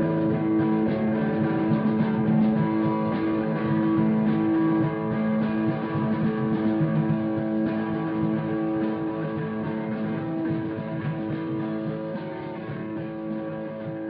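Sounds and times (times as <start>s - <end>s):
rock band playing: 0.0s - 14.0s.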